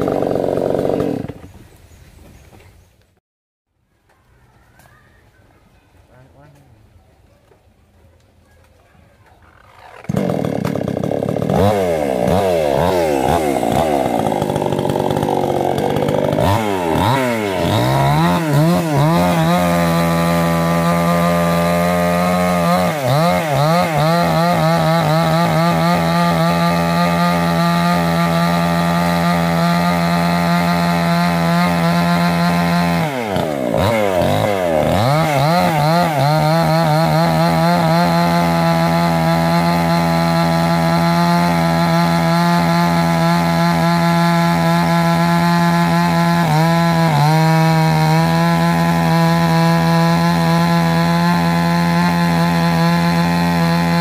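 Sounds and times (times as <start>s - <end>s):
chainsaw cutting tree trunk: 0.0s - 1.5s, 9.5s - 54.0s.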